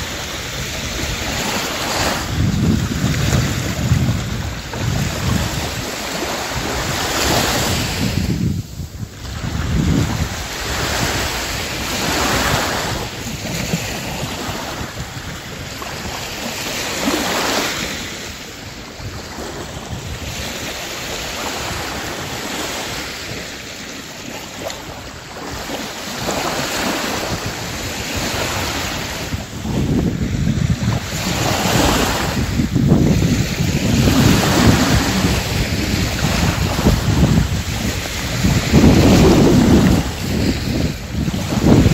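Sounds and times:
sea waves washing up a beach: 0:00.0 - 0:41.9
wind rumbling on microphone: 0:00.0 - 0:41.9.

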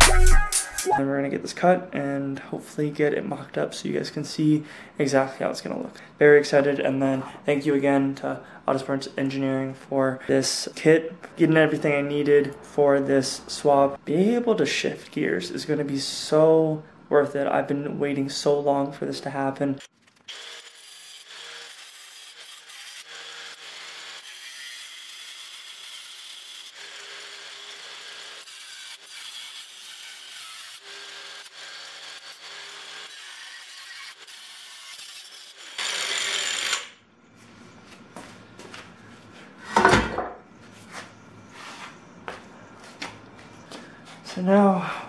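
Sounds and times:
angle grinder cutting metal: 0:00.0 - 0:00.9, 0:20.3 - 0:37.0.

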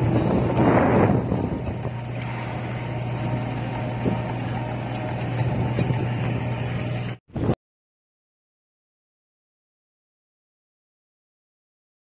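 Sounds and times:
wind on microphone: 0:00.0 - 0:04.5, 0:05.3 - 0:07.6
ship engine drone: 0:00.0 - 0:07.6.

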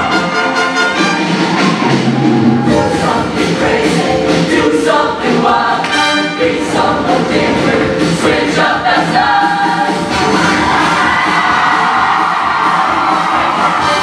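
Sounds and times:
live band with brass: 0:00.0 - 0:04.6, 0:05.8 - 0:06.6, 0:09.6 - 0:14.0
choir singing in harmony: 0:01.4 - 0:12.2.

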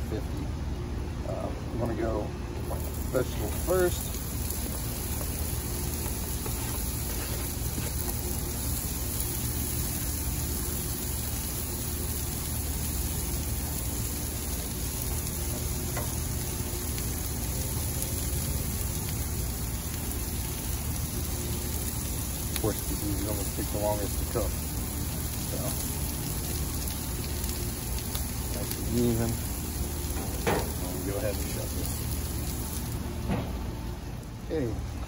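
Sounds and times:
vegetables sizzling in oil: 0:02.6 - 0:34.1.

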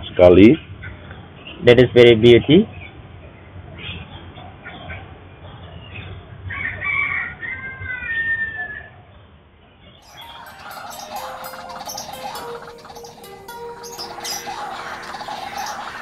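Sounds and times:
music: 0:10.0 - 0:16.0.

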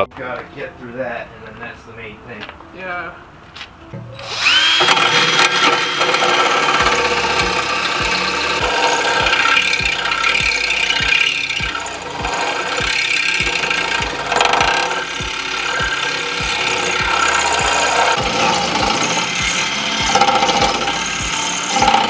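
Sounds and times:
cordless drill grinding into bolt: 0:04.2 - 0:22.0
regular low thumps: 0:06.7 - 0:21.9.

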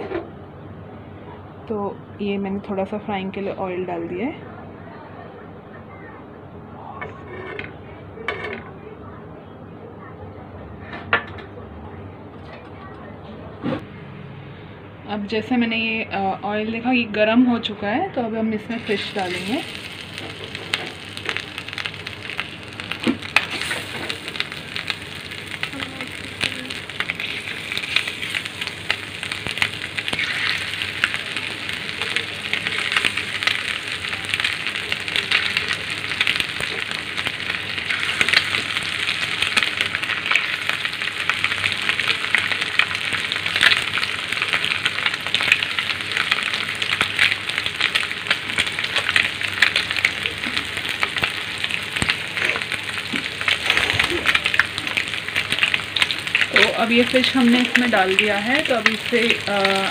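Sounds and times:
fish sizzling in hot oil: 0:18.6 - 0:59.9.

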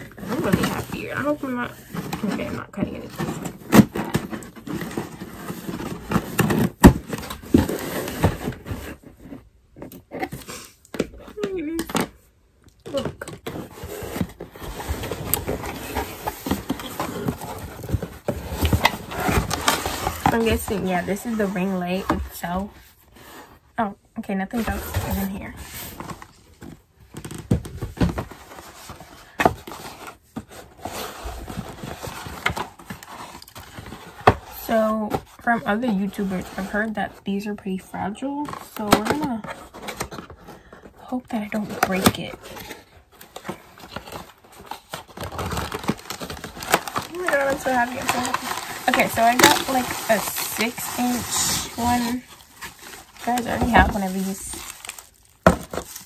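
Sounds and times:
cardboard box scraping on wood floor: 0:00.0 - 0:09.5, 0:12.9 - 0:22.2, 0:24.5 - 0:26.3, 0:44.8 - 0:56.0
packaging rustling and crinkling: 0:00.0 - 0:12.1, 0:12.7 - 0:23.6, 0:24.5 - 0:56.0.

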